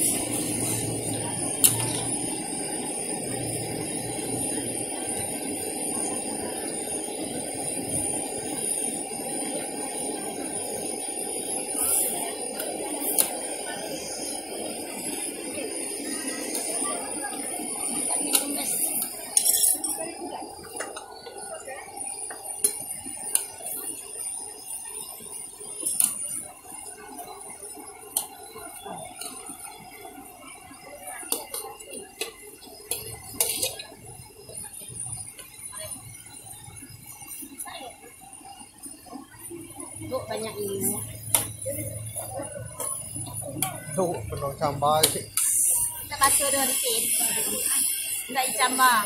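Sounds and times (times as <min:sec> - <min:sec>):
high-pitched ringing hiss: 0:00.0 - 0:49.0
water boiling in a wok: 0:00.0 - 0:49.0
metal spatula scraping a wok: 0:19.3 - 0:20.0, 0:33.4 - 0:33.9.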